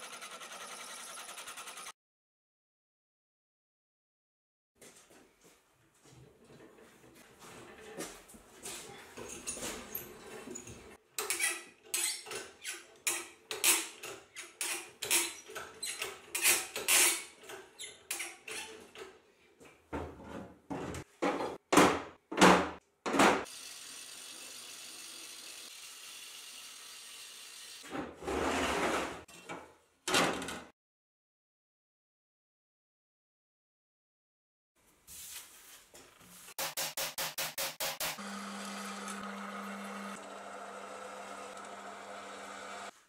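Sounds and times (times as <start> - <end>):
hand tool scraping steel: 9.6 - 18.8.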